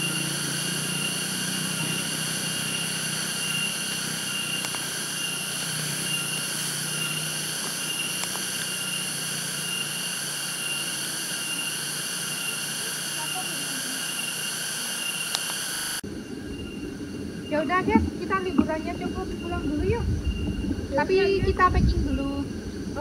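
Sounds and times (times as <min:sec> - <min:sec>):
forest insects chorus: 0:00.0 - 0:23.0
low hum: 0:15.9 - 0:23.0.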